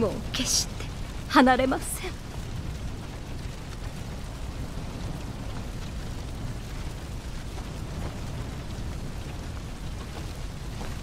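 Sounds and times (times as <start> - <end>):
fire crackling: 0.0 - 11.0
low rumble of flames: 0.0 - 11.0.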